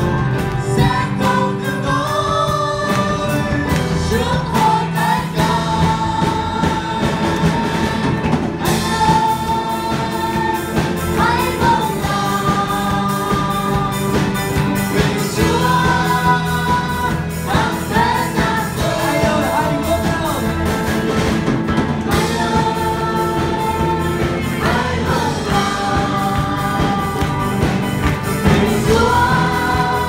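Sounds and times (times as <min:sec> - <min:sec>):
band with keyboard guitar drums: 0:00.0 - 0:30.0
people singing worship song: 0:00.0 - 0:30.0.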